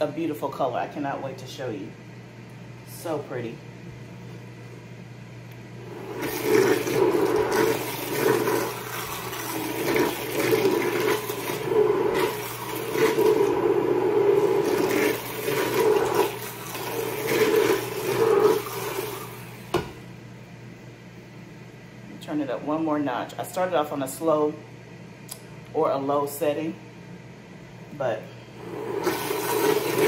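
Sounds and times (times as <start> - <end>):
immersion blender churning soup: 5.6 - 19.9, 28.5 - 30.0.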